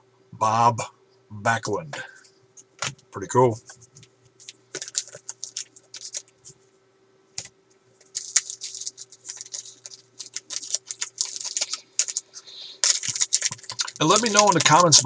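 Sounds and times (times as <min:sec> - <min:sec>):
trading cards crackling rustle: 0:02.8 - 0:06.6, 0:07.4 - 0:15.0.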